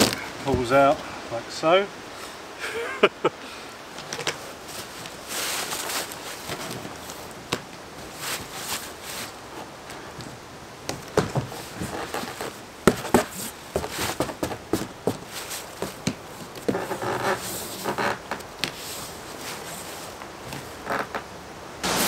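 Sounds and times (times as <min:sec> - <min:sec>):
cardboard scraping rustles: 0:04.2 - 0:21.1
cardboard knocking and tapping: 0:10.9 - 0:11.6, 0:12.9 - 0:15.2.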